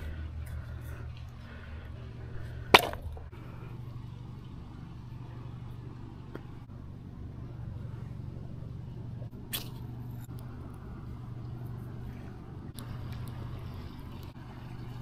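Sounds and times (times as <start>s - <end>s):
low background rumble: 0.0s - 15.0s
hatchet striking wood: 2.8s - 3.1s.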